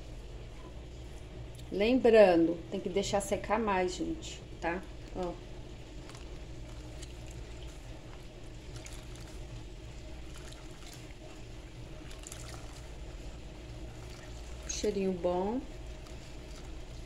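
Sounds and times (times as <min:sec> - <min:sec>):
wet sponge rubbing soap: 0:05.9 - 0:17.0.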